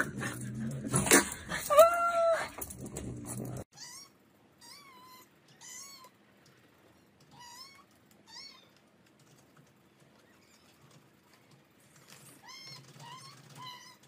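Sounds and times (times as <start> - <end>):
kitten whining: 3.8 - 6.1, 12.4 - 14.0.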